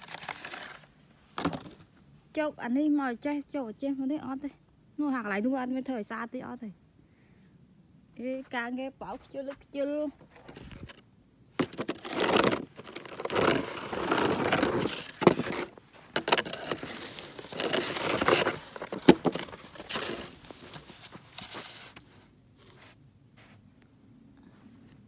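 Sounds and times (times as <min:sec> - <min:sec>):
crunching in packed snow: 0:11.6 - 0:23.6.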